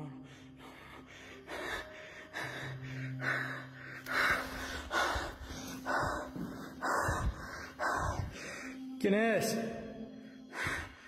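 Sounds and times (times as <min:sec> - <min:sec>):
man breathing heavily and gasping: 0:00.1 - 0:08.9.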